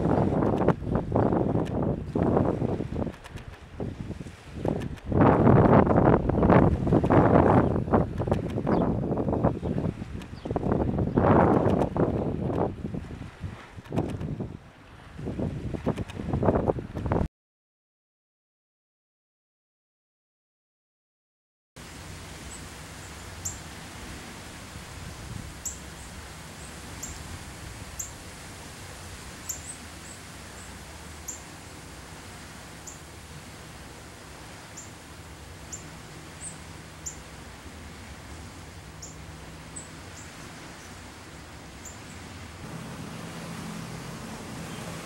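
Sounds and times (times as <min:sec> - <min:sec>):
steady low hum: 0:21.8 - 0:45.0.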